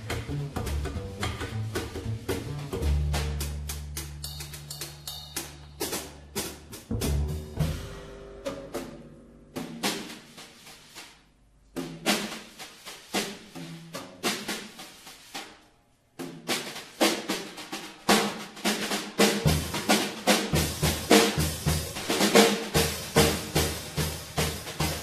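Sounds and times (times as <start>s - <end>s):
bass drum beats: 0.0s - 10.4s
snare and tom strokes: 0.0s - 25.0s.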